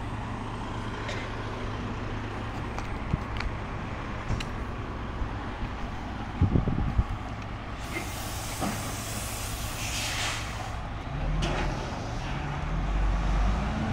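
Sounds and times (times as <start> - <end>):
low engine hum: 0.0 - 13.9
air brakes hissing: 7.8 - 10.8.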